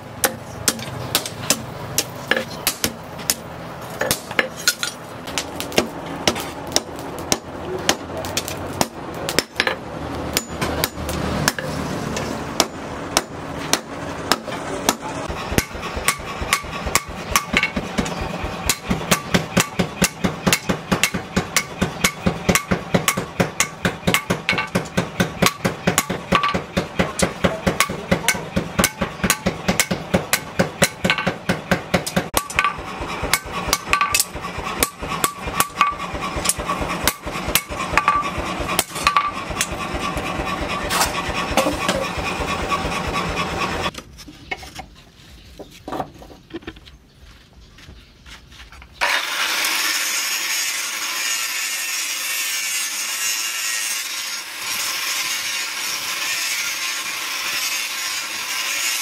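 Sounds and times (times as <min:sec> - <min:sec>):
hammer blows on anvil: 0:12.6 - 0:39.8.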